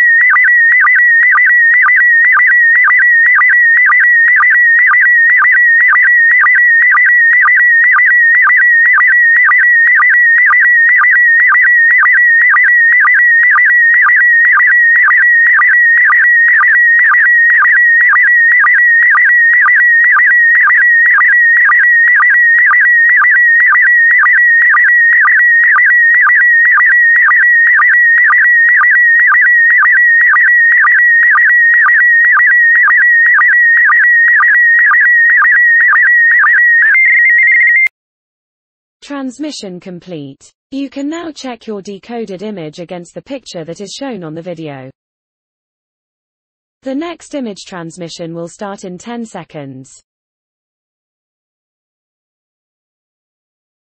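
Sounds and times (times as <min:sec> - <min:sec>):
warbling signal tone: 0:00.0 - 0:37.9.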